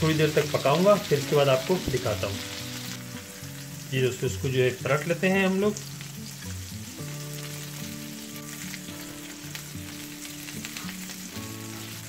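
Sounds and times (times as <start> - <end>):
fish sizzling in a frying pan: 0.0 - 12.0
soft background music: 0.0 - 12.0
small crackles: 7.1 - 12.0.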